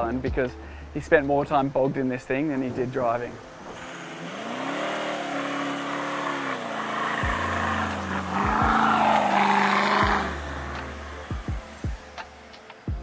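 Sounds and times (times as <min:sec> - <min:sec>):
engines revving hard: 0:03.6 - 0:12.6
tyres spinning in sand: 0:03.8 - 0:11.1.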